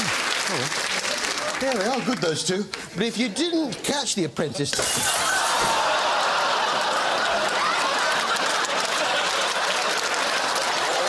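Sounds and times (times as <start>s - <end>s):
audience applauding: 0.0s - 2.5s, 5.1s - 11.0s
audience laughing: 4.8s - 11.0s.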